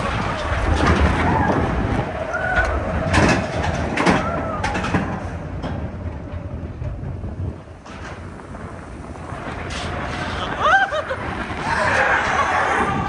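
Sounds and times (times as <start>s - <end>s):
coaster clatter: 0.0s - 13.0s
roller coaster wheels rumbling: 0.0s - 13.0s
rushing air: 0.0s - 13.0s.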